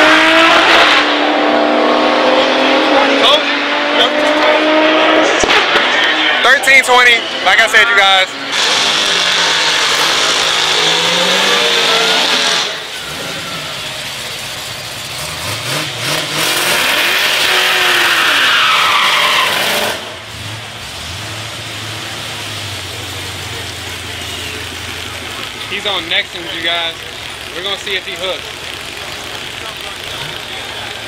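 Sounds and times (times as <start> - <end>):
race car engine revving: 0.0 - 31.0
engine idling: 12.8 - 15.9, 21.6 - 31.0.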